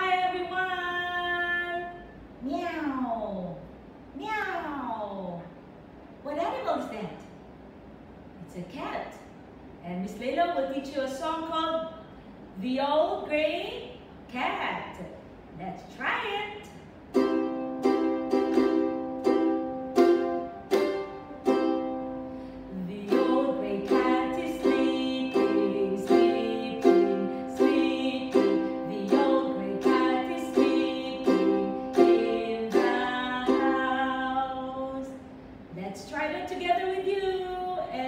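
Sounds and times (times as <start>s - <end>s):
ukulele strumming chords: 17.1s - 35.0s.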